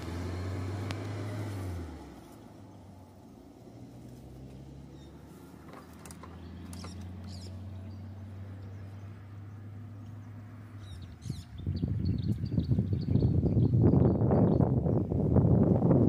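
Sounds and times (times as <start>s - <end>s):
vehicle engine idling: 0.0s - 16.0s
bird chirps: 6.3s - 14.8s.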